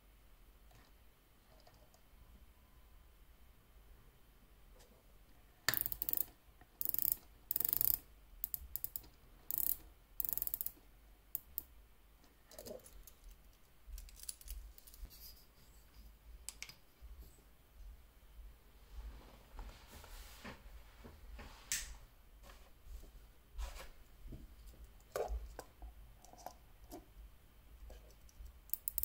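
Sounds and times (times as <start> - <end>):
watch bezel ratcheting clicks: 5.7 - 10.8, 11.4 - 11.7, 28.7 - 29.0.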